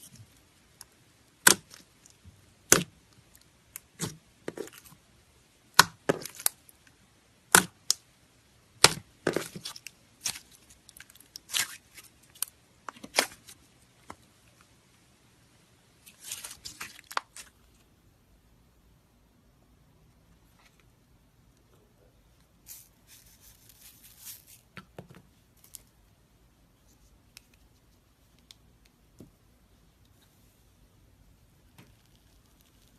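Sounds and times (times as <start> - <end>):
slime crackling softly: 31.5 - 32.9.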